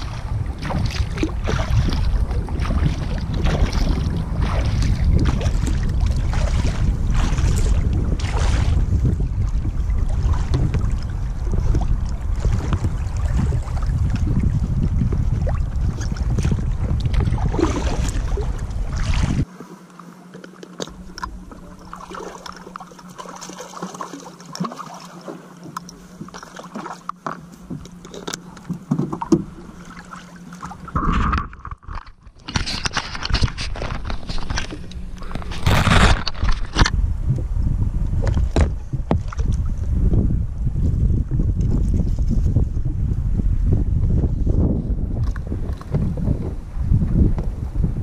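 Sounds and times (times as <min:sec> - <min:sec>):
wind rumbling on microphone: 0:00.0 - 0:19.5, 0:20.8 - 0:23.6, 0:27.5 - 0:48.0
water splashing: 0:00.0 - 0:37.0
faint steady hum: 0:00.0 - 0:48.0
water sloshing around kayak: 0:00.0 - 0:48.0
small scrapes and knocks: 0:30.6 - 0:37.0.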